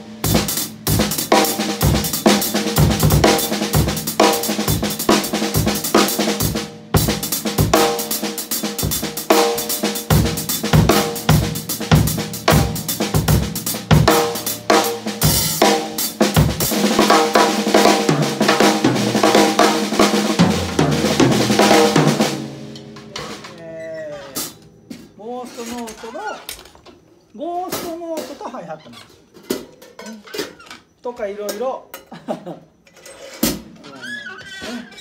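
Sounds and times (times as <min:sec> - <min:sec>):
bass drum: 0:00.0 - 0:07.9, 0:10.1 - 0:23.5
snare ghost notes: 0:00.0 - 0:24.6.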